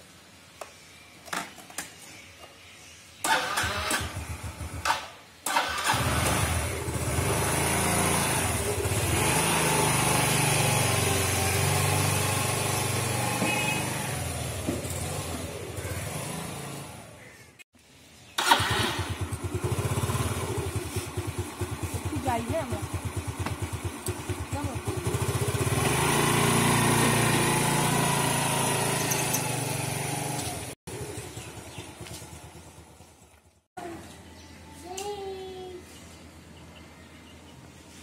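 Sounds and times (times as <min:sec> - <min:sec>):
motor scooter engine: 0:03.3 - 0:17.4, 0:18.4 - 0:33.5.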